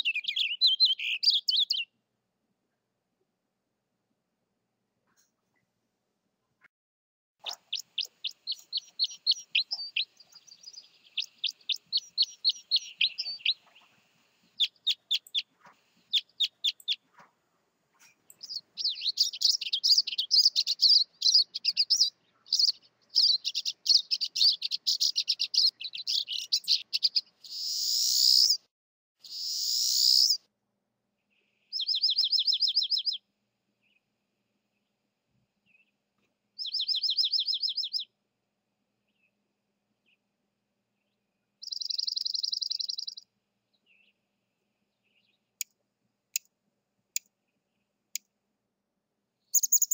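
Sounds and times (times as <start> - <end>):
high bird twittering: 0.0 - 1.9, 7.4 - 14.0, 14.6 - 17.0, 18.0 - 28.6, 29.2 - 30.4, 31.7 - 33.2, 36.6 - 38.1, 41.6 - 43.2, 49.5 - 49.9
fast bird trill: 7.4 - 13.9, 18.4 - 28.6, 29.2 - 30.4, 41.6 - 43.2, 49.5 - 49.9.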